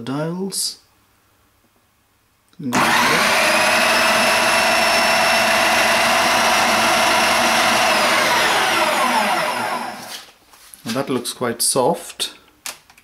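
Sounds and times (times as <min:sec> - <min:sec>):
food processor motor whining: 0:02.7 - 0:10.2.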